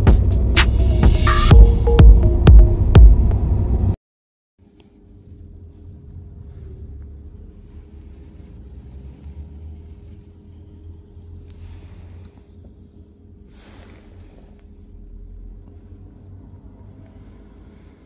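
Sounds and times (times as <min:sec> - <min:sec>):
car engine and road rumble: 0:00.0 - 0:04.0, 0:04.7 - 0:18.0
faint constant hum: 0:04.6 - 0:18.0.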